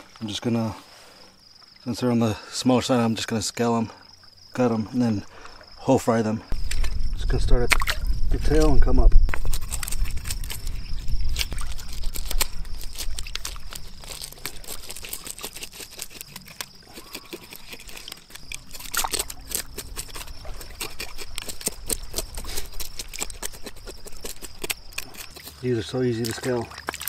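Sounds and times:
knife scraping fish scales: 0:09.3 - 0:25.7
water lapping at shore: 0:09.3 - 0:27.0.

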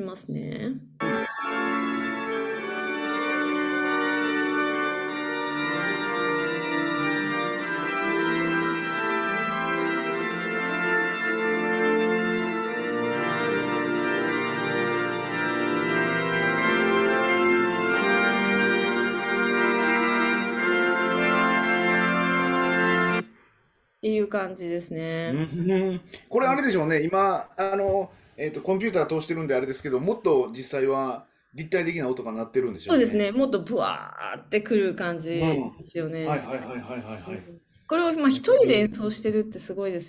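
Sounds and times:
pipe organ playing chords: 0:01.0 - 0:23.2.

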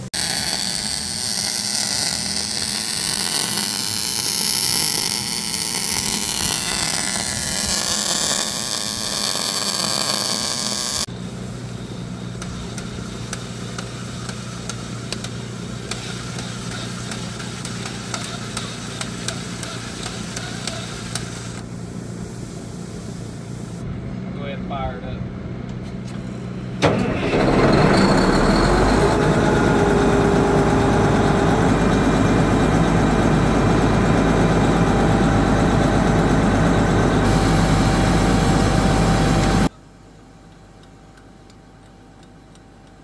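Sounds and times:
loud even hiss: 0:00.0 - 0:23.8, 0:37.3 - 0:39.7
cordless drill spinning: 0:02.1 - 0:11.1
low engine hum: 0:11.0 - 0:39.7.

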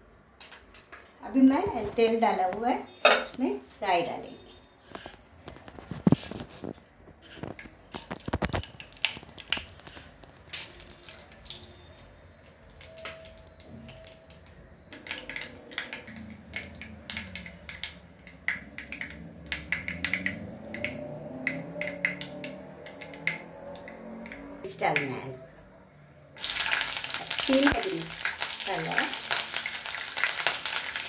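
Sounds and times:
seeds popping in hot oil: 0:05.5 - 0:25.2, 0:26.4 - 0:31.0.

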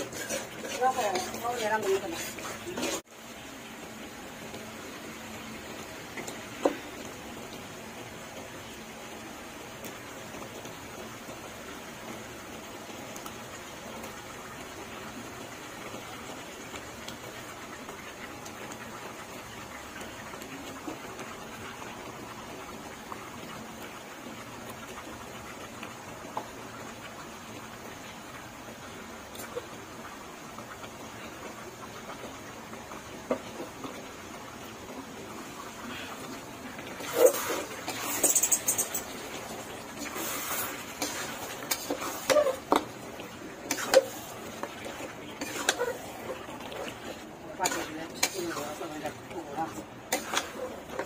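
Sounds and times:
metal spatula scraping a pot: 0:00.0 - 0:03.1, 0:37.0 - 0:39.3, 0:40.0 - 0:42.9, 0:43.6 - 0:44.7, 0:45.3 - 0:49.1, 0:50.1 - 0:51.0
meat sizzling in oil: 0:00.0 - 0:51.0.

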